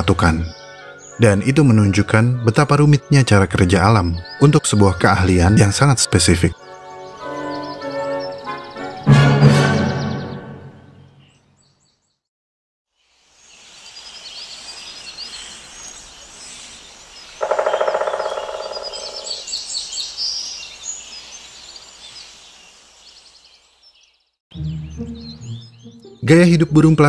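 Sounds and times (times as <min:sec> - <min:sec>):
small birds chirping: 0:00.0 - 0:09.0, 0:09.8 - 0:12.3, 0:12.9 - 0:27.0
woodpecker drumming on wood: 0:17.4 - 0:19.5.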